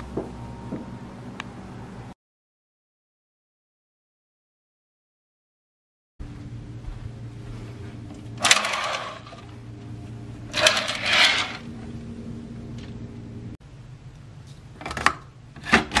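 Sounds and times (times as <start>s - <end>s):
steady low hum: 6.2s - 16.0s
curtain drawn along rail: 8.4s - 9.4s, 10.5s - 11.7s.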